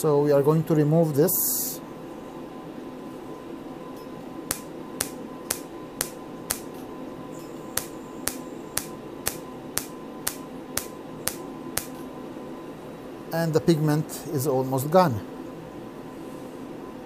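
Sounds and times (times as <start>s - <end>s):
steady hum: 0.0s - 17.0s
laser pulses snapping: 4.5s - 6.8s, 7.4s - 12.1s.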